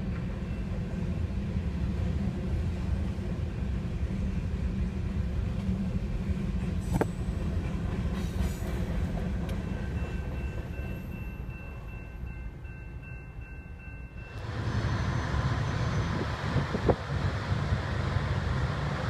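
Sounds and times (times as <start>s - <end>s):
crossing warning bell ringing: 0.0s - 1.5s, 9.1s - 16.5s
freight train rumbling: 0.0s - 19.0s.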